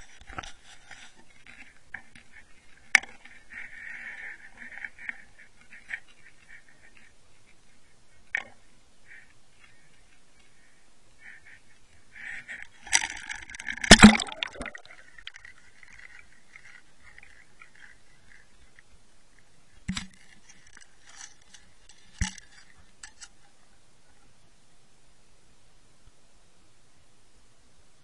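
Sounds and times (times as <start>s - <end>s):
clattering underwater: 12.7s - 18.5s
camera splashing into water: 13.0s - 15.0s.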